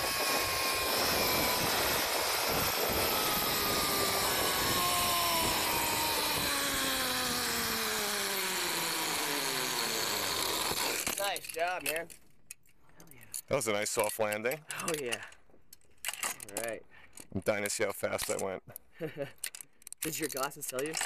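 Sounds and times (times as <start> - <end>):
wind rushing: 0.0 - 7.0
pulley wheels whining on cable: 0.0 - 12.2.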